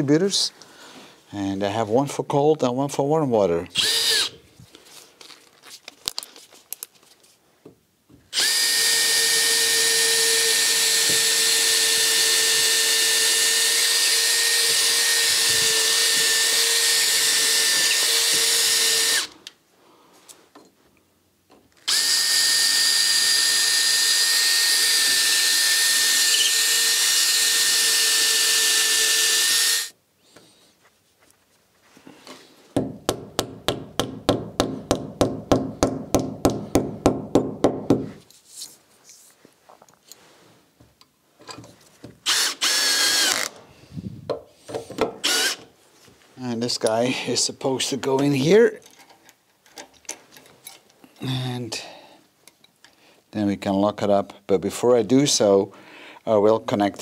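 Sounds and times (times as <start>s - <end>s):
cordless drill boring into concrete: 3.8s - 4.4s, 8.3s - 19.4s, 21.8s - 30.0s, 42.2s - 43.6s, 45.2s - 45.7s.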